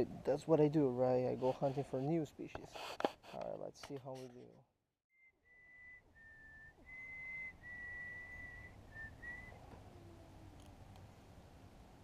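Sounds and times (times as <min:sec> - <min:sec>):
person whistling a slow tune: 0:05.2 - 0:09.6.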